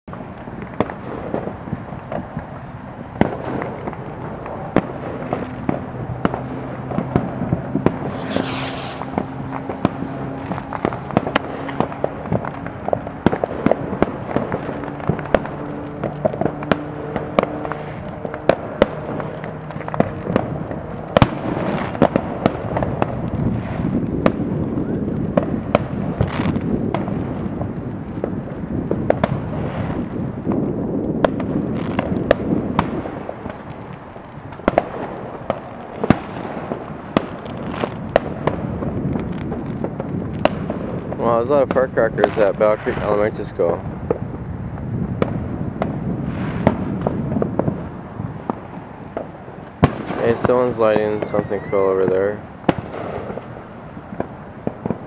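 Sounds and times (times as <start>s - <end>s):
fireworks bangs and pops: 0.1s - 55.0s
low droning tone: 7.9s - 13.1s
firecracker crackle: 7.9s - 55.0s.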